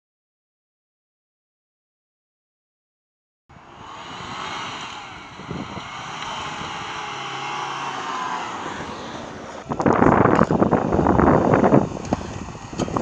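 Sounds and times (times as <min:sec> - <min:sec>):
pickup engine pulling: 0:03.5 - 0:13.0.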